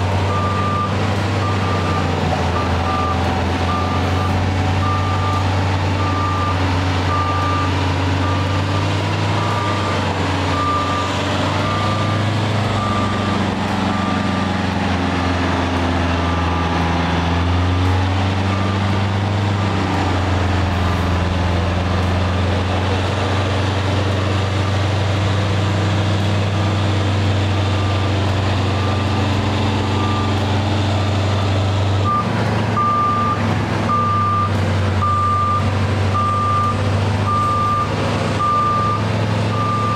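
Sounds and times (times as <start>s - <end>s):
heavy diesel engine running: 0.0s - 39.9s.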